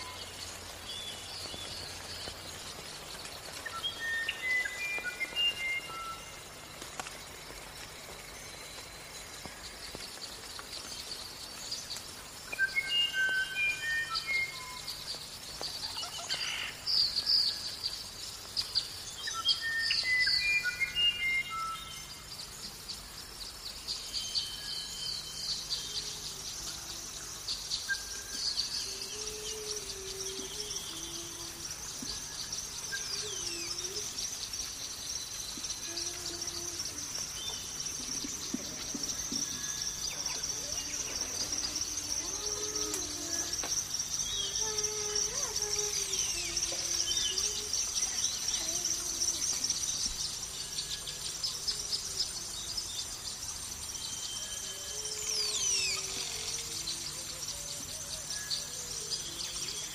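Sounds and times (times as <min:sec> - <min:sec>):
lower wavering bird calls: 0:00.0 - 0:06.8, 0:07.5 - 0:23.1, 0:23.8 - 0:59.9
birds chirping and singing: 0:00.0 - 0:59.9
high-pitched background drone: 0:35.5 - 0:53.0.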